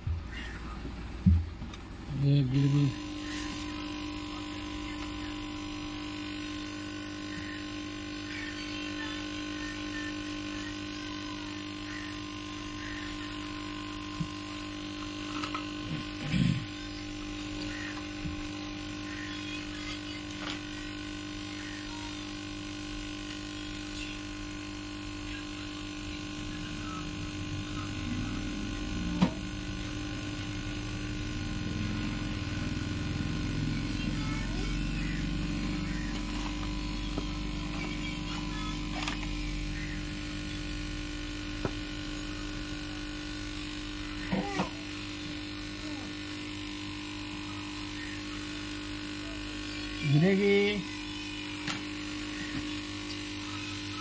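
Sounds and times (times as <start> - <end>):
short vocal sound: 15.8 - 16.8
steady tonal hum: 23.4 - 54.0.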